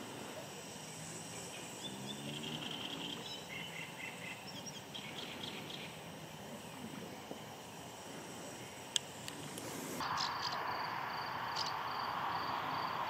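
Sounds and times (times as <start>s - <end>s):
steady outdoor hiss: 0.0s - 13.0s
small birds chirping: 1.4s - 6.8s.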